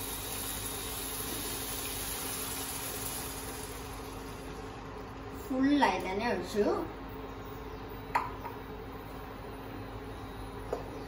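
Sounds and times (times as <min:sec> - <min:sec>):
liquid pouring: 0:00.0 - 0:05.0
frying pan sizzling: 0:00.0 - 0:05.3
faint steady hum: 0:00.0 - 0:11.0.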